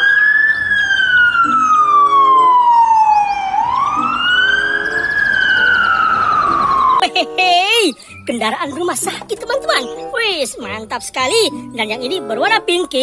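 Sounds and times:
ambulance siren wailing: 0.0 - 7.4.

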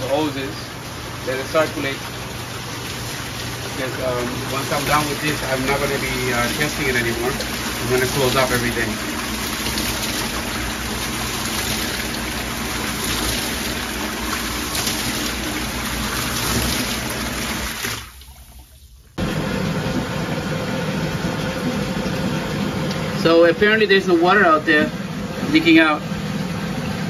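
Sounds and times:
jets churning water: 0.0 - 27.0
whirlpool pump humming: 0.0 - 27.0.

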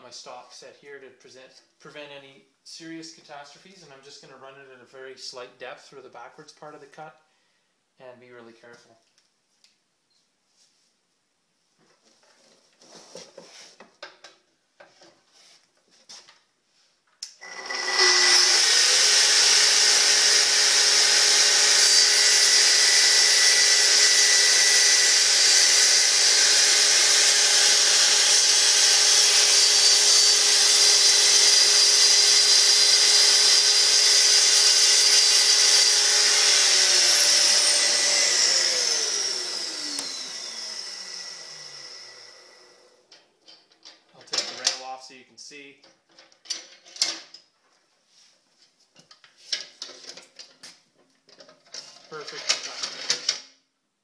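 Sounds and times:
dust extractor running: 17.4 - 42.9
track saw running and cutting: 17.4 - 43.0.

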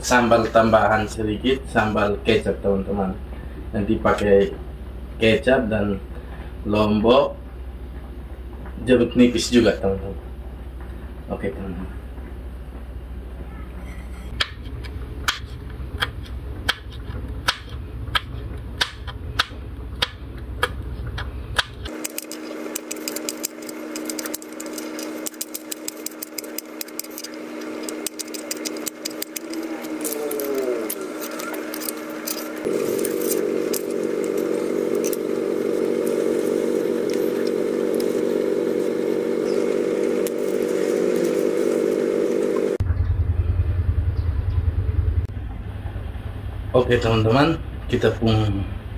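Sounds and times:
engine-like drone: 13.3 - 48.9.

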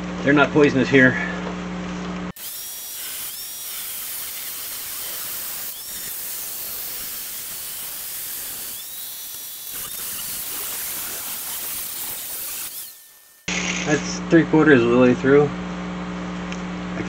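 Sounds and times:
angle grinder cutting metal pipe: 2.3 - 14.0
high motor whine: 2.3 - 14.7.

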